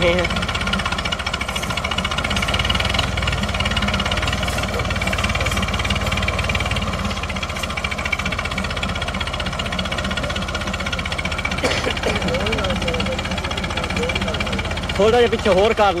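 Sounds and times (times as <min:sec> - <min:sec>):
diesel tractor engine running: 0:00.0 - 0:16.0.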